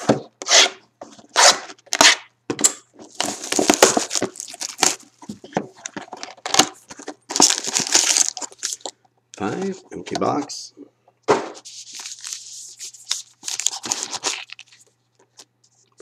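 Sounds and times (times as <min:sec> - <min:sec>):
plastic shrink wrap tearing: 0:03.1 - 0:05.1, 0:07.3 - 0:08.9, 0:11.7 - 0:14.9.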